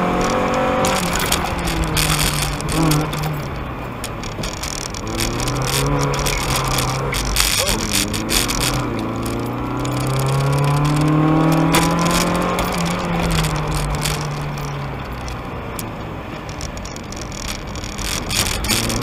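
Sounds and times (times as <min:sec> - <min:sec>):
car engine accelerating: 0:00.0 - 0:19.0.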